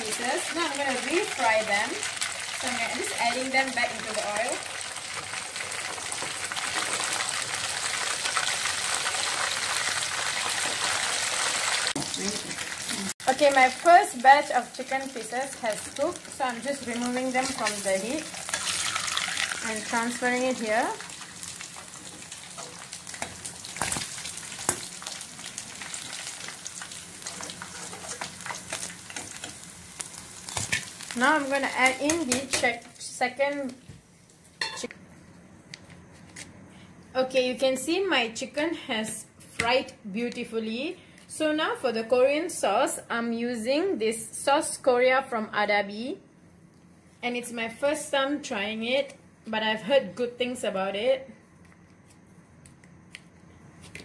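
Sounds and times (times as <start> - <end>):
chicken sizzling in hot oil: 0.0 - 32.9.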